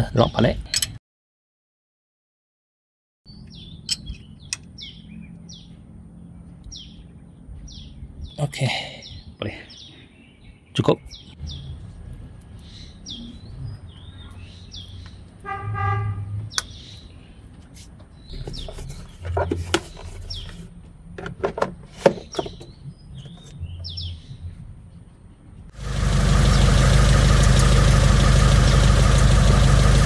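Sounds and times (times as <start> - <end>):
birds chirping: 3.3 - 21.2, 21.8 - 30.0
clicks and knocks of engine parts: 17.6 - 23.6.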